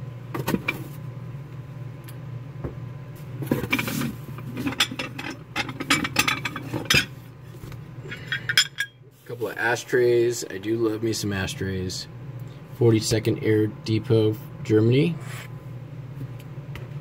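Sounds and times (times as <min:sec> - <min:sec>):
steady low hum: 0:00.0 - 0:17.0.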